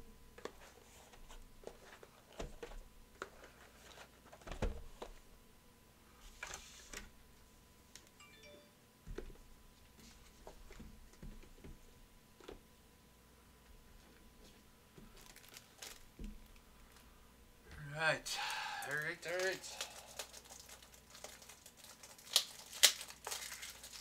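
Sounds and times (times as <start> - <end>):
faint steady tone: 8.1 - 9.8
plastic wrap crinkling: 15.0 - 17.1, 18.8 - 24.0.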